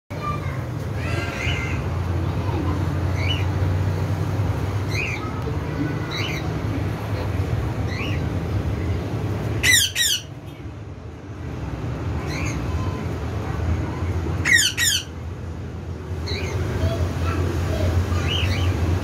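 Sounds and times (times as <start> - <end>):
shrill squawks: 9.6 - 10.4, 14.4 - 15.2.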